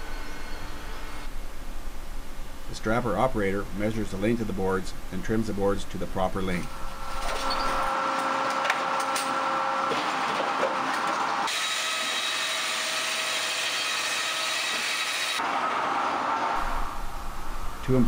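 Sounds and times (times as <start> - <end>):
saw cutting boards: 7.2 - 16.7.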